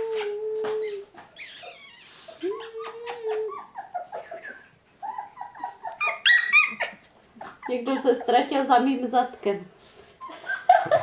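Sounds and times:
puppies whining and whimpering: 0.0 - 8.4.

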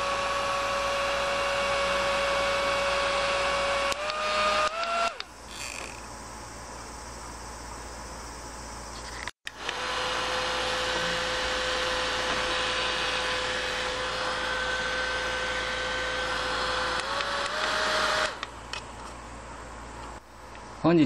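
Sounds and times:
small fan motor whining: 0.0 - 20.7.

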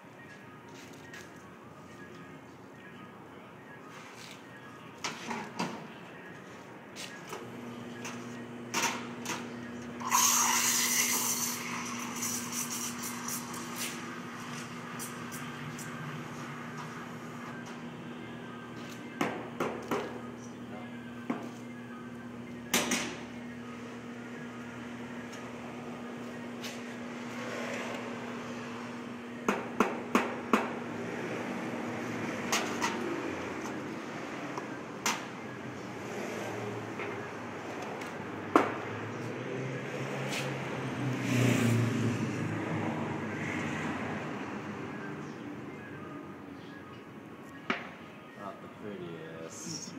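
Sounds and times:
espresso pump humming: 9.9 - 15.6.

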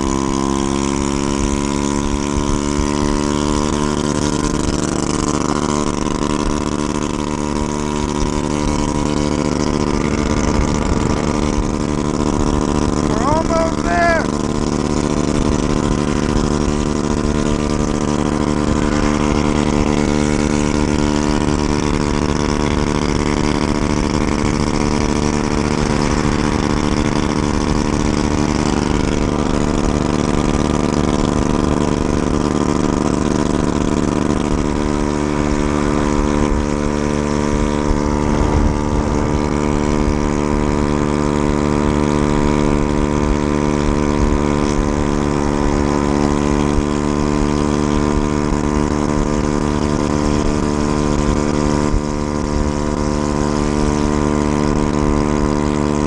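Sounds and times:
scooter engine running: 0.0 - 56.0
wind rushing over microphone: 5.8 - 45.8.

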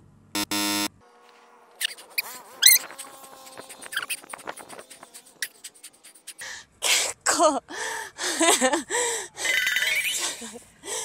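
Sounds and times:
squeaky whistle-like pitch glides: 1.8 - 3.1.

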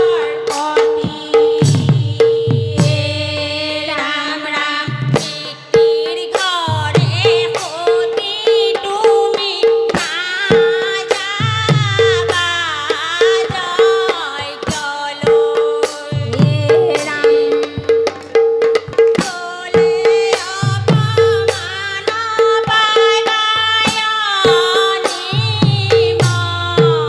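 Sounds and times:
barrel drum beating: 11.4 - 14.0, 16.1 - 27.0.

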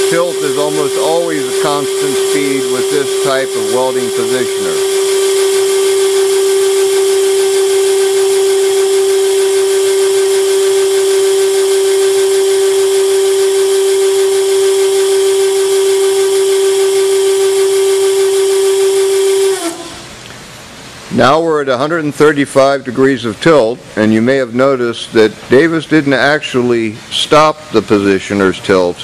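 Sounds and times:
tilt drive whine: 0.0 - 21.1.

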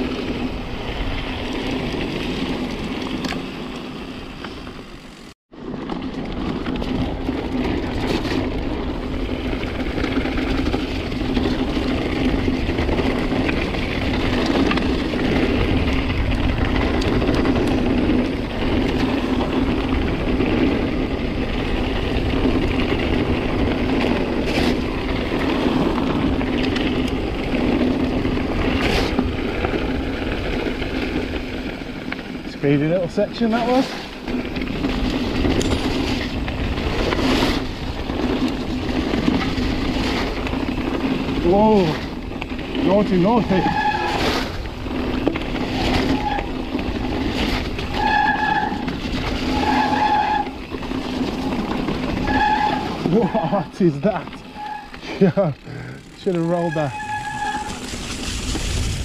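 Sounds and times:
bike tyres on gravel: 0.0 - 59.0
wind on microphone: 56.9 - 59.0.

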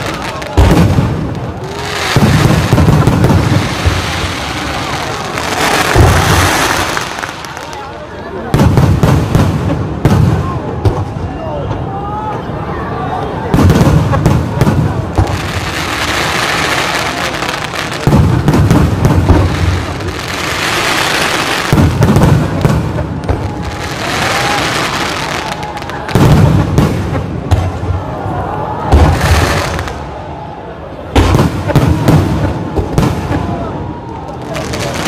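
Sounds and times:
firework shells booming: 0.0 - 7.6, 8.5 - 11.2, 13.5 - 25.3, 26.0 - 28.0, 31.1 - 33.6.

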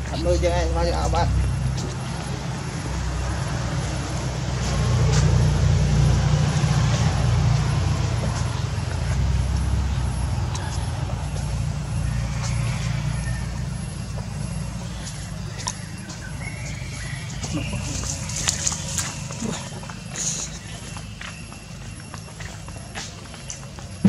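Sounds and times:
vehicle engine rumble: 0.0 - 24.0.

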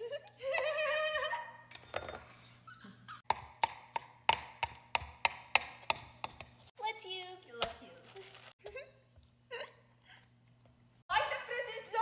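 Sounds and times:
knife chopping on wooden board: 3.3 - 6.6.

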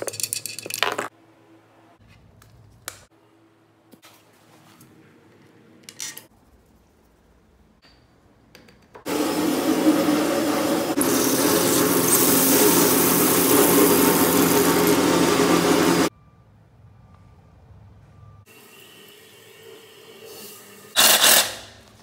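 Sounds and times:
water rushing from hose spigot: 11.0 - 15.4.

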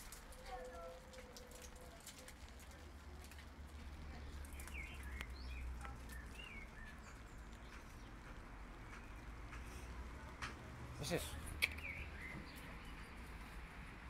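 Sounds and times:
light rain dripping: 0.0 - 14.0
bird chirping: 4.4 - 9.4, 11.2 - 13.3.

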